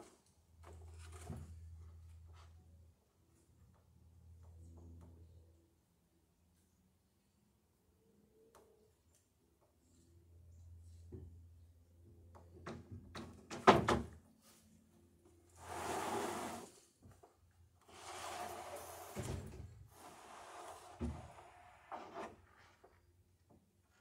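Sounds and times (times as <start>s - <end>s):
board sliding over board: 15.6s - 16.8s, 17.9s - 22.8s.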